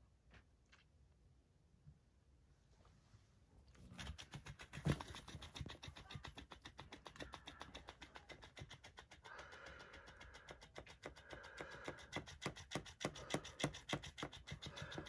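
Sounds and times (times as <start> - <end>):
toy fish tail flapping patter: 4.0 - 15.0.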